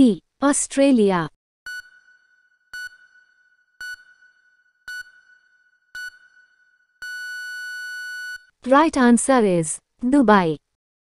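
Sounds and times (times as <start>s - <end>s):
short electronic beeps: 1.7s - 5.4s, 6.0s - 6.4s
long steady beep: 1.7s - 8.5s.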